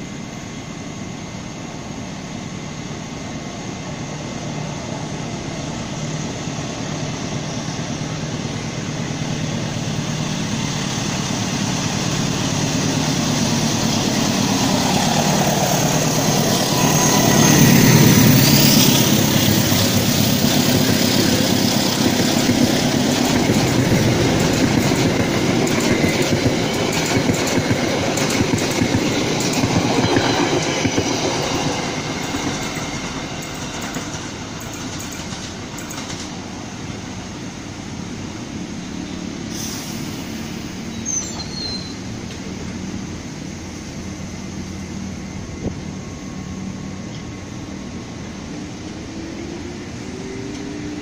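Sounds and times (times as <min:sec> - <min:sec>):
locomotive engine: 0:03.2 - 0:51.0
train wheels clattering over rail joints: 0:18.1 - 0:36.5.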